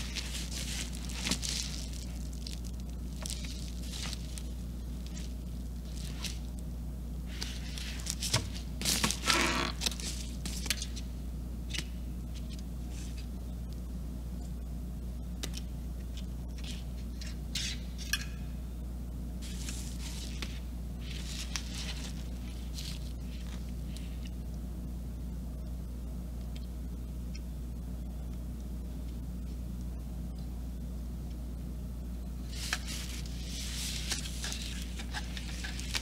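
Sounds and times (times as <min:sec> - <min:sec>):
rustling and scraping of handling: 0:00.0 - 0:11.1, 0:12.2 - 0:13.4, 0:19.4 - 0:24.5, 0:32.4 - 0:36.0
steady low hum: 0:00.0 - 0:36.0.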